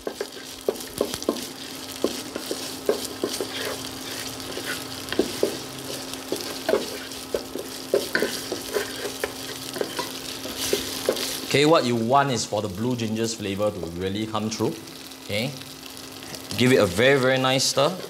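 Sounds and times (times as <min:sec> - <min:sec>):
wooden spatula scraping pot: 0:00.0 - 0:11.5
paste sizzling in oil: 0:00.0 - 0:18.0.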